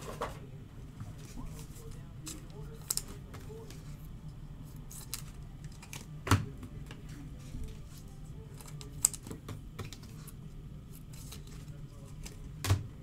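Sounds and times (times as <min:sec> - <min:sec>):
cards and plastic holders clicking: 0:08.5 - 0:10.1.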